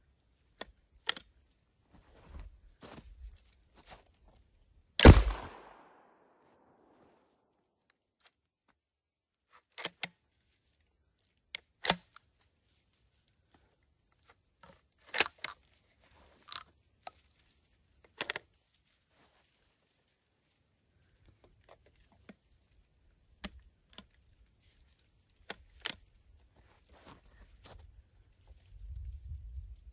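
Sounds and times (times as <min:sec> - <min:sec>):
shotgun action clicking: 0:05.0 - 0:05.9.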